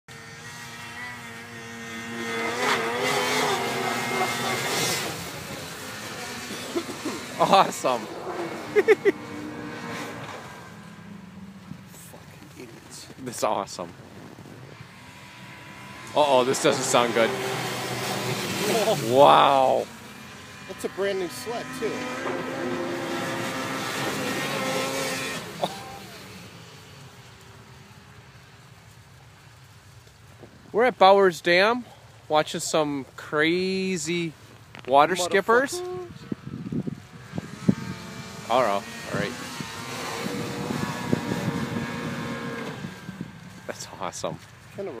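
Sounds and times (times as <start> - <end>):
snowmobile engine running hard: 0.1 - 11.0, 12.4 - 26.3, 35.0 - 44.0.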